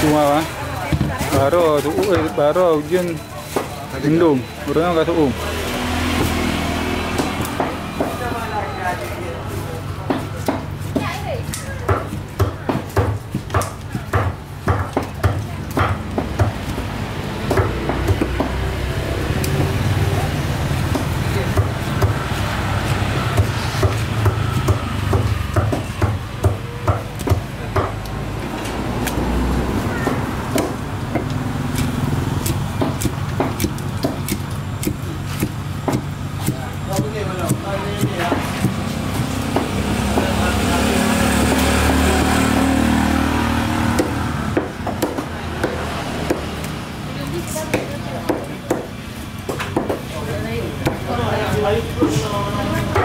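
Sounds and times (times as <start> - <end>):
knife chopping on wooden block: 10.0 - 18.7, 20.8 - 28.2, 30.0 - 40.6, 43.8 - 46.8.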